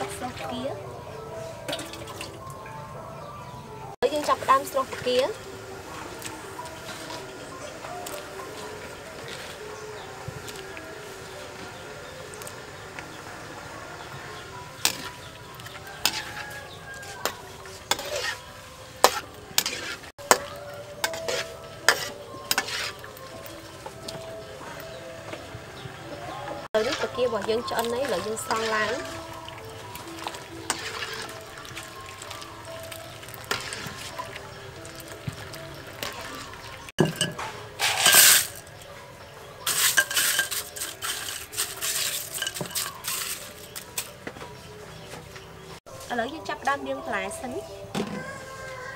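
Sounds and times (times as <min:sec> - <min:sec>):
hot water hissing: 0:26.8 - 0:36.9
crushed ice rustling and clinking: 0:26.8 - 0:38.8, 0:39.6 - 0:44.1
metal ladle clanking on wok: 0:37.0 - 0:38.6.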